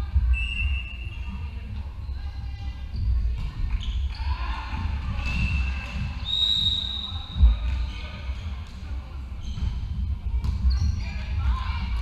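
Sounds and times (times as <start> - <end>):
low thuds in a hall: 2.9 - 11.9
referee's whistle: 6.2 - 7.3.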